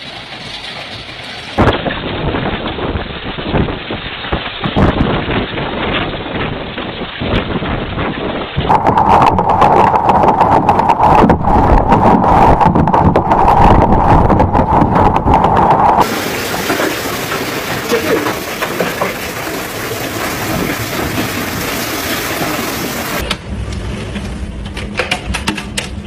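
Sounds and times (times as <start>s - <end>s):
wind and hail roar: 0.0s - 25.4s
hailstones clattering on hard surfaces: 0.1s - 8.7s, 16.0s - 23.2s
steady tone: 8.7s - 18.5s.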